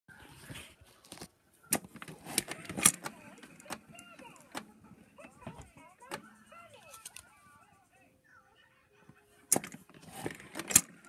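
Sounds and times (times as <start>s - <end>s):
soft rustling handling noise: 0.1s - 8.2s.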